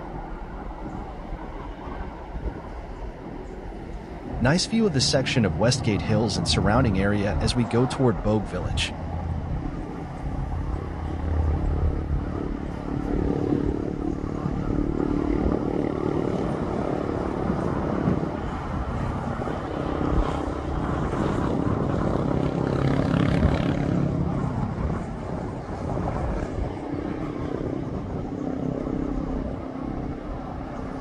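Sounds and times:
wind or road noise hiss: 0.0 - 24.1
engine drone: 0.0 - 31.0.

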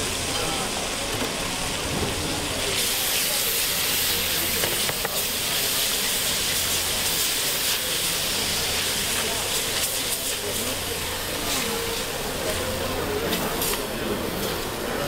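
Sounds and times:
cream sizzling in frying pan: 0.0 - 15.0
whisk tapping pan: 2.8 - 12.6.

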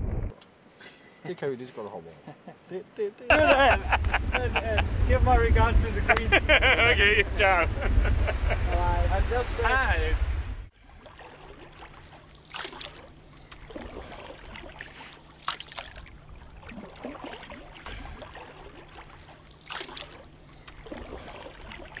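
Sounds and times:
paddle splashing in water: 10.8 - 22.0
water trickling drips: 10.9 - 22.0.

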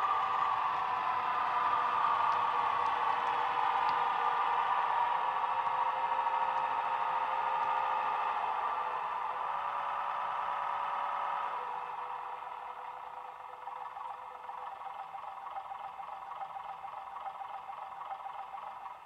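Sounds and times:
diesel engine sound from small speaker: 0.0 - 19.0.

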